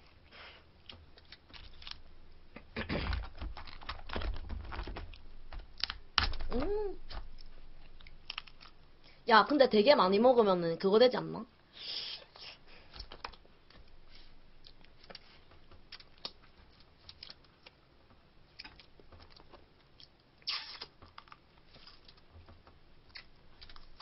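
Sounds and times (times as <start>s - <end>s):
crab legs clicking and crackling: 0.7s - 9.2s, 12.3s - 24.0s.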